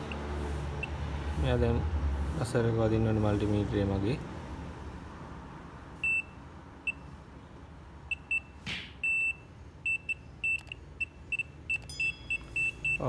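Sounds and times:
multimeter continuity beeps: 0:06.0 - 0:07.1, 0:08.1 - 0:13.0.

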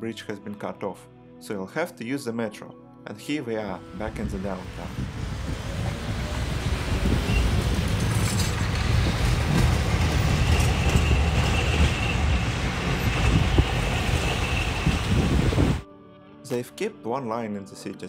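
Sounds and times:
tram wheels rumbling on rails: 0:04.0 - 0:15.8.

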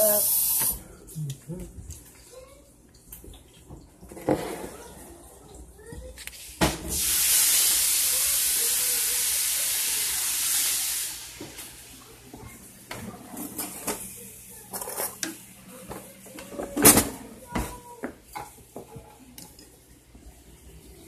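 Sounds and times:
hot pan hissing and sizzling: 0:00.0 - 0:00.8, 0:06.9 - 0:12.0.

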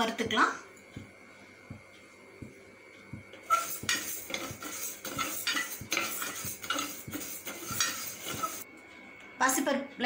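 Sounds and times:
spoon scraping metal pan: 0:03.4 - 0:08.6.

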